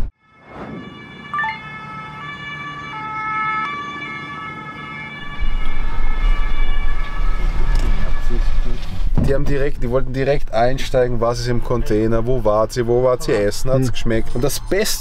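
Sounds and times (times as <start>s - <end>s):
siren-like electronic tones: 0.0s - 8.5s.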